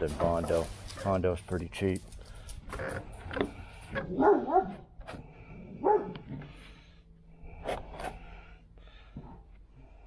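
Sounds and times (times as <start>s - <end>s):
plastic spreader scraping: 0.0s - 1.4s
dog barking: 4.0s - 4.8s, 5.8s - 6.3s.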